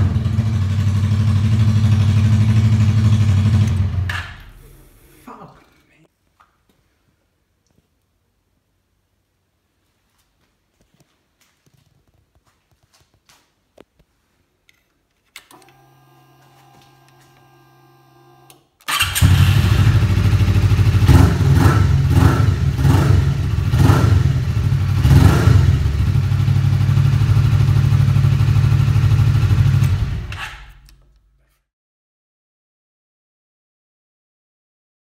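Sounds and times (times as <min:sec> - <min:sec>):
motorcycle engine revving and idling: 0:00.0 - 0:04.4, 0:19.0 - 0:30.5
click: 0:30.8 - 0:31.3.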